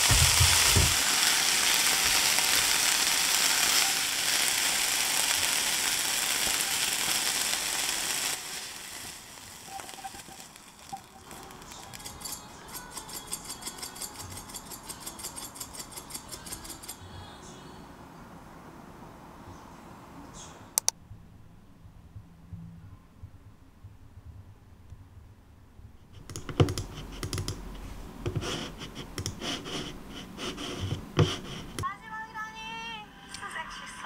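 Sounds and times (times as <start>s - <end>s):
noodles sizzling in a frying pan: 0.0s - 17.0s
pepper flakes rattling in a jar: 0.0s - 17.0s
food scraping onto a plate: 28.3s - 31.8s.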